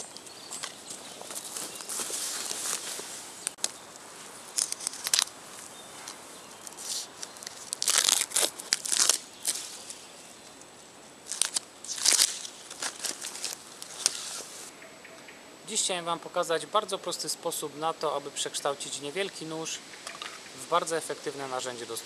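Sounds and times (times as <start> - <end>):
knife scraping and tearing bark: 4.5 - 5.4, 6.0 - 10.5, 11.2 - 14.7.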